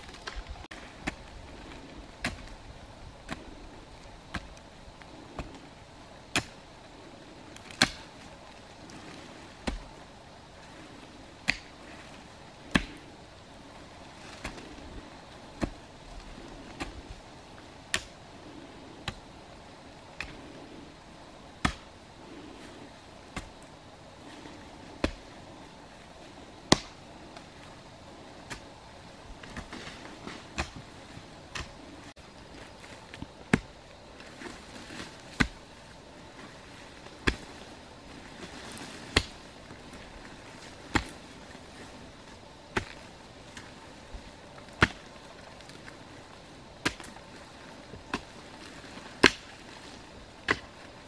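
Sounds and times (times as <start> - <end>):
hoe chopping into earth: 6.3 - 6.6, 7.7 - 8.1, 12.7 - 13.0, 21.6 - 21.9, 26.7 - 27.0, 29.4 - 30.8, 39.0 - 39.4, 44.8 - 45.1, 49.2 - 49.5.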